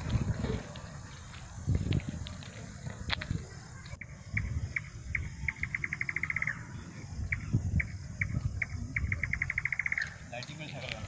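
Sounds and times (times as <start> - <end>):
animal chirping: 4.4 - 10.2.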